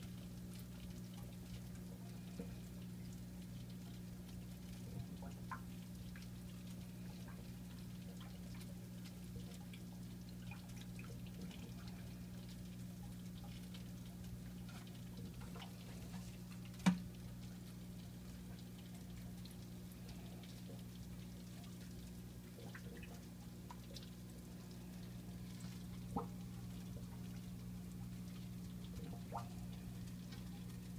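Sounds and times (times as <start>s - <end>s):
water dripping and trickling: 0.0s - 30.9s.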